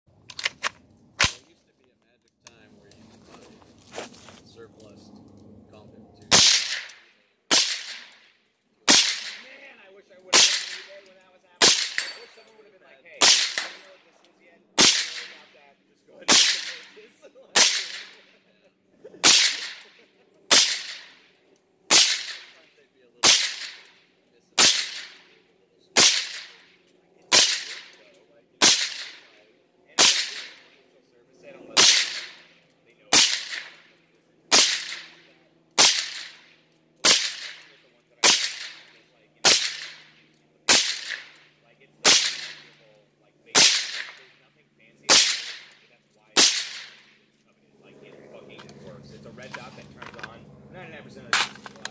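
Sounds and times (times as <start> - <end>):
suppressed rifle shots: 6.3 - 8.3, 8.9 - 9.7, 10.3 - 12.5, 13.2 - 14.1, 14.8 - 15.6, 16.2 - 18.4, 19.2 - 21.3, 21.9 - 22.6, 23.2 - 24.0, 24.6 - 26.7, 27.3 - 29.4, 30.0 - 30.8, 31.7 - 42.9, 43.5 - 44.4, 45.1 - 47.1.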